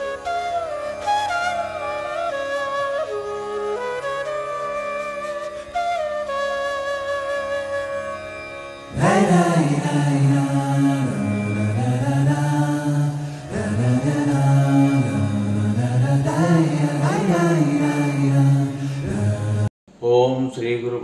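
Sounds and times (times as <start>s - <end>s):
flute tune: 0.0s - 19.7s
man chanting: 9.0s - 21.0s.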